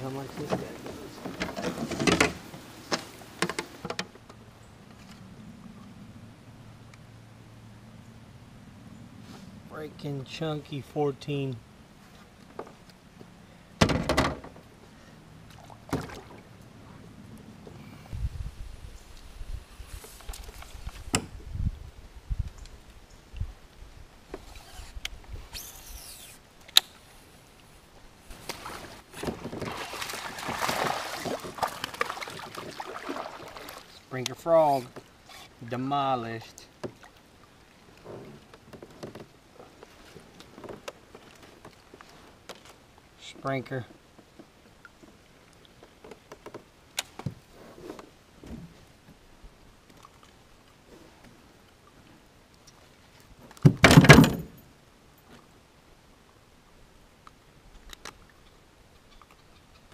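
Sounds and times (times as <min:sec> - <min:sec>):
fishing rod swishing hiss: 0:24.4 - 0:27.1.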